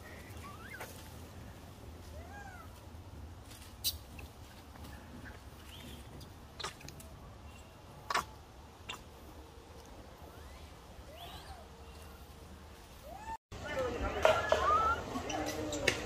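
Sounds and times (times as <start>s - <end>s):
faint high chirps: 10.2s - 12.3s.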